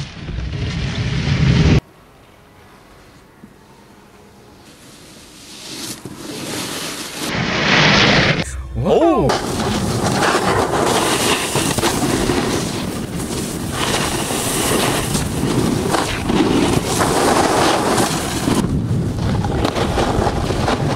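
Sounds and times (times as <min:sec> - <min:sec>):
wind noise on microphone: 0:09.4 - 0:20.9.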